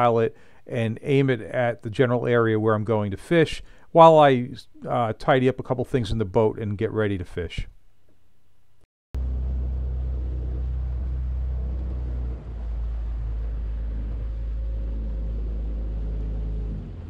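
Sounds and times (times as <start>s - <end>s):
outboard motor droning: 9.2s - 17.0s.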